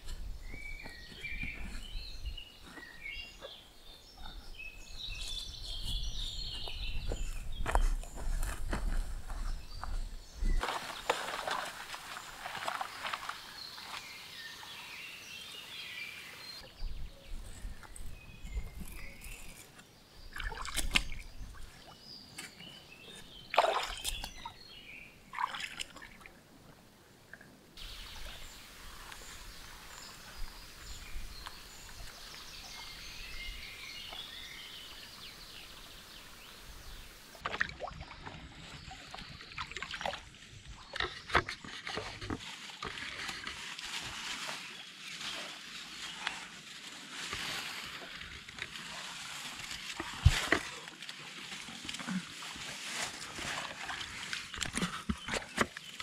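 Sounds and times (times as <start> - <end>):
small birds chirping: 0.0 - 26.3, 27.8 - 37.4
water splashing and sloshing: 9.8 - 14.2, 20.2 - 22.5, 23.4 - 26.7, 34.0 - 56.0.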